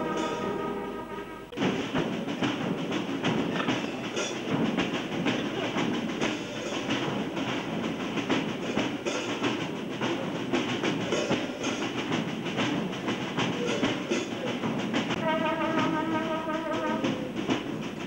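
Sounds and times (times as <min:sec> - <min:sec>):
brass band playing: 0:00.0 - 0:11.2, 0:14.8 - 0:18.0
steady drum beat: 0:00.0 - 0:18.0.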